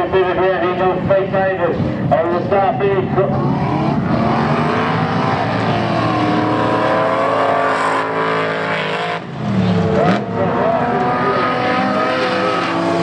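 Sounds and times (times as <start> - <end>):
race car engines: 0.0 - 13.0
engine revving: 3.2 - 13.0.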